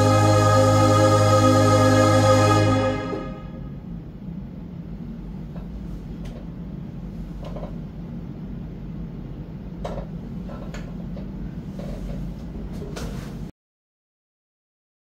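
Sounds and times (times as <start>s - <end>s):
low room hum: 0.0s - 13.5s
soft knocks and rustles: 11.7s - 13.5s.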